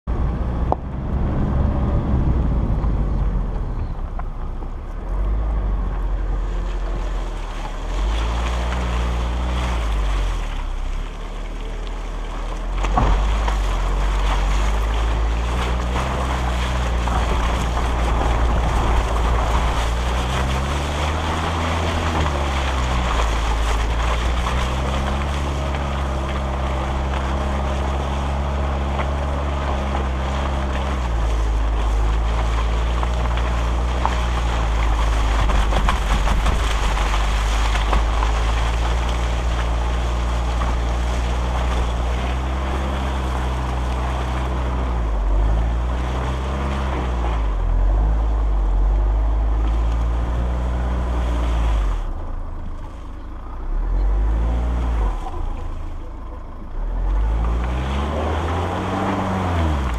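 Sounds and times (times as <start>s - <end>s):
suv engine revving: 0.0s - 59.9s
wind buffeting microphone: 0.1s - 7.0s
tyres churning through mud: 0.1s - 59.9s.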